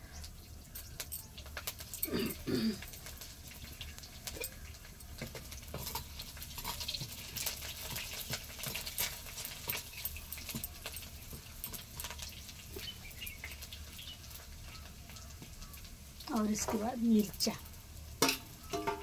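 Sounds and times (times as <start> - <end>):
garlic sizzling in hot oil: 0.0 - 19.0
ladle stirring in a pan: 2.8 - 16.9, 18.0 - 19.0.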